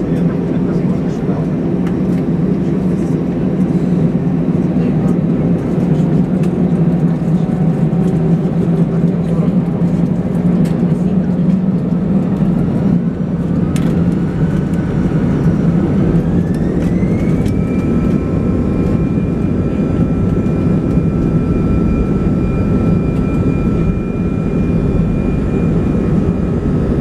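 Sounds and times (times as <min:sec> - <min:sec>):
jet engines spooling up: 0:11.6 - 0:27.0.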